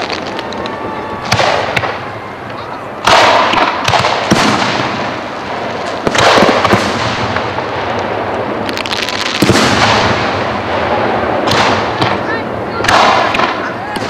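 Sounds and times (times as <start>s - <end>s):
fireworks bangs: 0.0s - 14.0s
fireworks crackling: 0.0s - 14.0s
sharp firework cracks: 0.0s - 14.0s.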